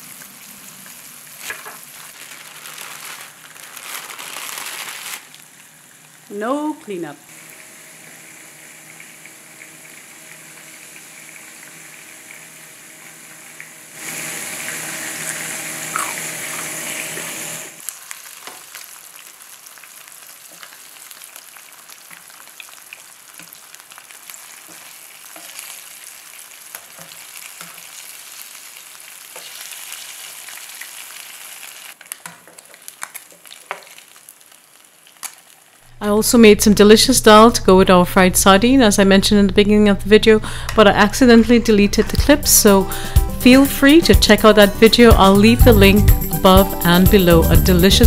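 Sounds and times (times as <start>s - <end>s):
fish sizzling in hot oil: 0.0s - 6.3s, 7.3s - 35.9s.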